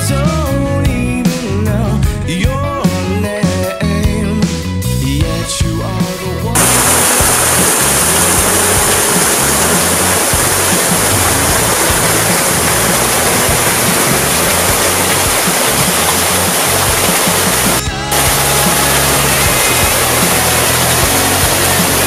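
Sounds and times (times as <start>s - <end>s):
background music: 0.0s - 22.0s
waterfall rushing: 6.6s - 22.0s.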